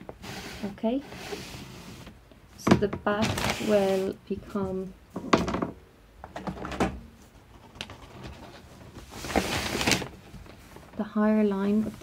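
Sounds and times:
paper rustling: 7.8s - 11.1s.

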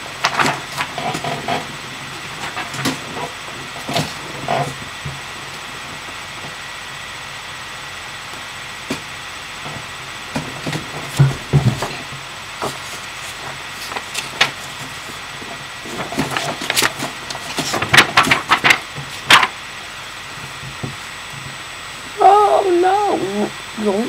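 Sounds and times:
paper rustling: 12.6s - 19.5s.

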